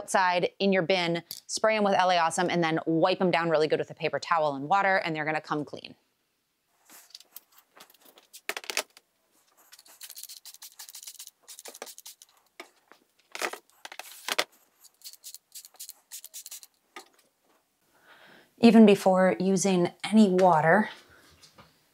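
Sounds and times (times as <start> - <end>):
spray bottle hissing: 9.7 - 12.4, 14.8 - 16.7.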